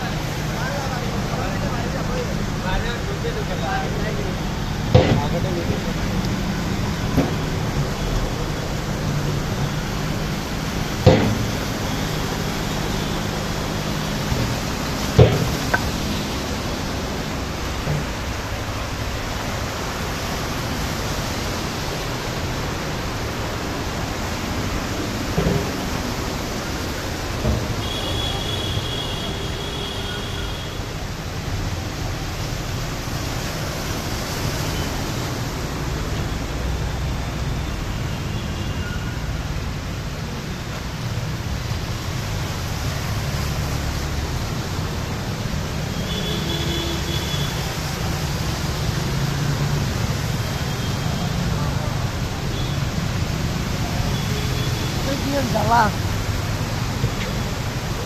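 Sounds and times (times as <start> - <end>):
floodwater rushing: 0.0 - 58.0
short thump: 4.9 - 5.4, 15.2 - 15.9.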